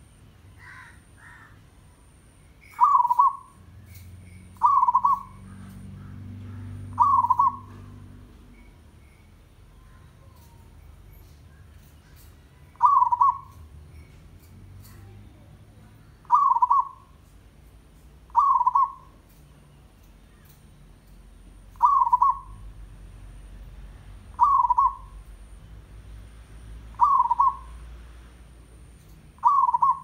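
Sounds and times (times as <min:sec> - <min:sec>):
dove trilled cooing: 0:02.7 - 0:08.1, 0:12.1 - 0:13.7, 0:16.2 - 0:17.2, 0:18.3 - 0:19.2, 0:21.7 - 0:22.7, 0:24.3 - 0:25.4, 0:26.9 - 0:27.8, 0:29.4 - 0:30.0.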